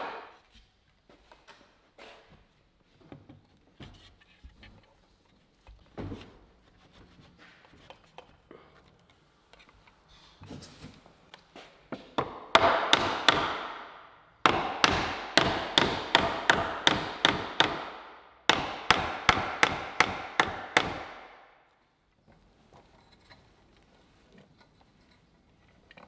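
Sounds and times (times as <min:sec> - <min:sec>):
mallet knocking on wood: 0:12.2 - 0:13.8, 0:14.5 - 0:21.2.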